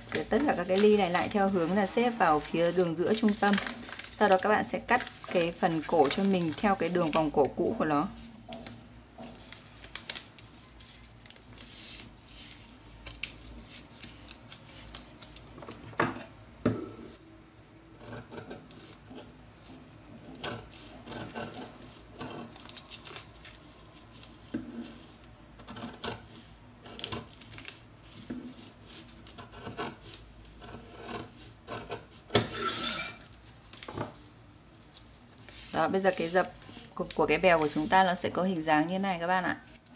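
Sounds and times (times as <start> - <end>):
paper rustling: 0.0 - 15.8, 22.3 - 25.2, 27.0 - 29.2, 33.4 - 38.1.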